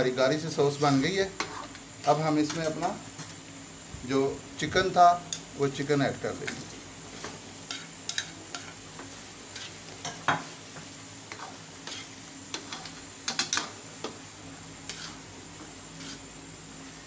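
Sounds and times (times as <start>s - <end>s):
plastic spatula scraping a wok: 0.8s - 1.8s, 8.5s - 10.0s, 11.3s - 13.0s, 14.8s - 15.3s, 15.9s - 16.4s
sauce sizzling: 2.9s - 17.0s.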